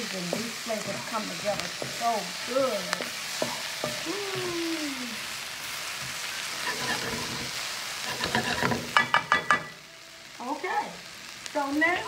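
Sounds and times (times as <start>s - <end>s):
vegetables sizzling in wok: 0.0s - 12.0s
spatula clattering in wok: 8.1s - 9.8s.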